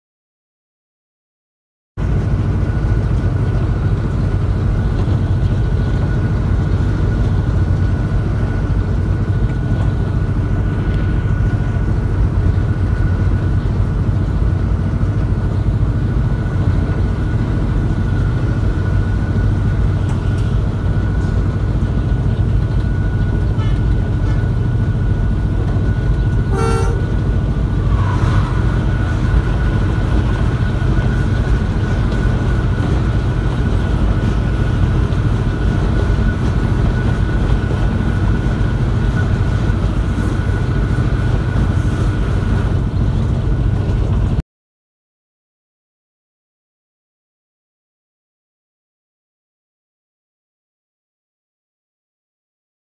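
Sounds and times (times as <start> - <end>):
train rumbling along track: 2.0 - 44.4
train horn toot: 23.5 - 24.7, 26.4 - 28.9.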